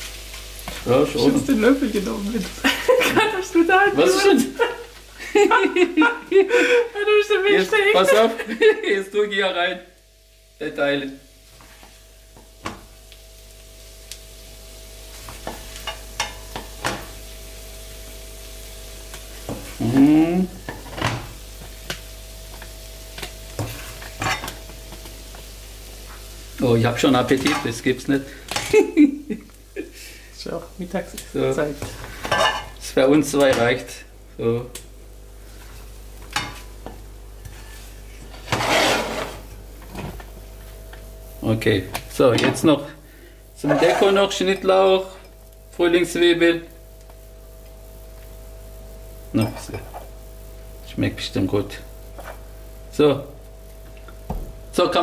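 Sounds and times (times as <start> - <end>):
stir-fry sizzling in a pan: 0.0 - 55.0
spoon scraping a pan: 23.2 - 24.6, 32.2 - 32.8, 37.4 - 39.6, 43.6 - 44.6, 52.1 - 52.5
spoon scraping: 38.4 - 39.5, 43.6 - 44.3.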